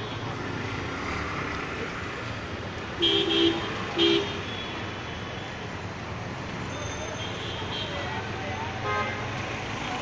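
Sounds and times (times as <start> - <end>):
traffic on flooded street: 0.0 - 10.0.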